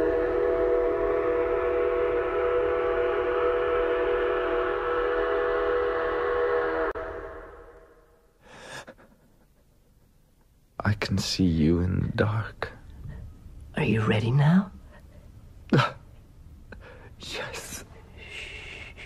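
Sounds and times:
train whistle chord: 0.0 - 8.5.

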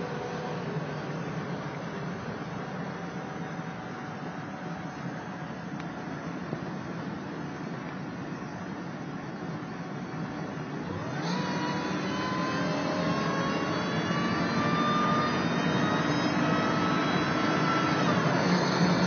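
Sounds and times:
whine rising with revs: 10.8 - 19.0
engine pulling hard: 10.9 - 19.0.

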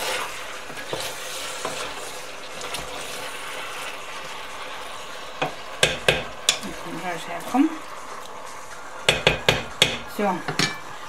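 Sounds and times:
vegetables sizzling in a pot: 0.0 - 11.0
spatula knocking against pot: 5.4 - 6.6, 9.1 - 10.8.

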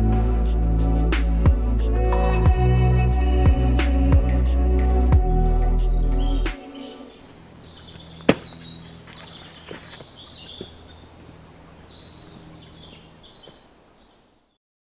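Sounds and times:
small birds chirping: 5.2 - 14.6
light knocks: 8.2 - 8.6
sharp crack: 8.2 - 8.7.

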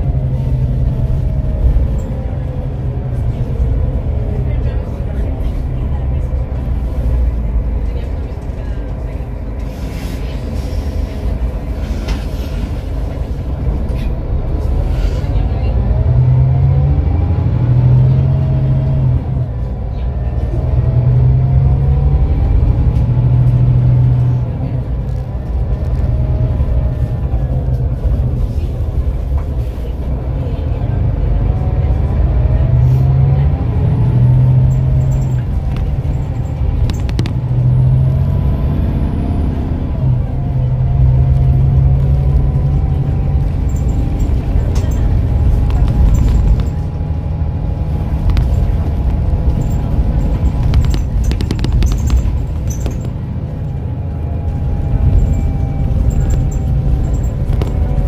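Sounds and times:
coach diesel engine drone: 0.0 - 58.0
faint drivetrain whine: 0.0 - 58.0.

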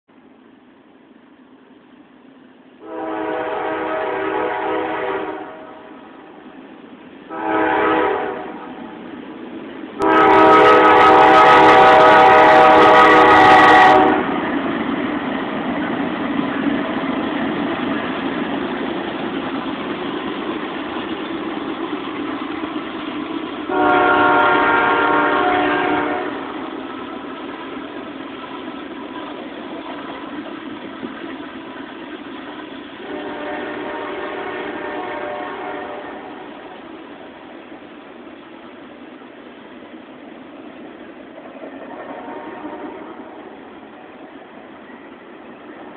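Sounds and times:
train rolling rumble: 0.1 - 45.9
locomotive air horn blasts: 2.8 - 6.0, 7.3 - 8.8, 10.0 - 14.4, 23.7 - 26.6, 33.0 - 36.5, 41.9 - 43.5.

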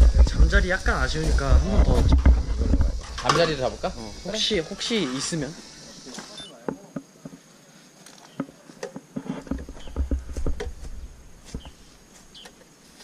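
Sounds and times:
low microphone rumble: 0.0 - 4.2
footsteps through dry grass: 9.4 - 13.0.

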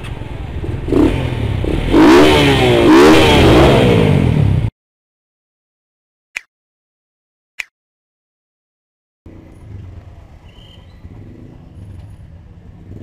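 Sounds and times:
engine revving: 0.6 - 4.7.

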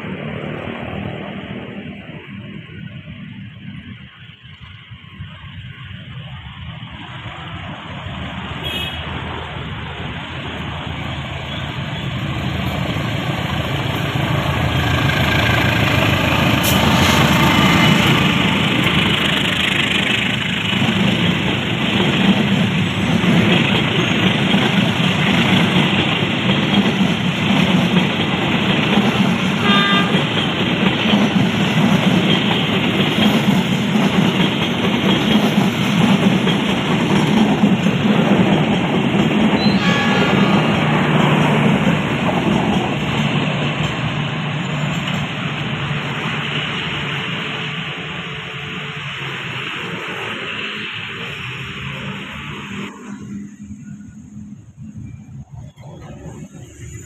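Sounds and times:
locomotive engine: 0.0 - 57.0
train coaches rumbling on rails: 0.0 - 57.0
train horn toot: 8.6 - 9.1, 29.6 - 30.4, 39.6 - 41.2.

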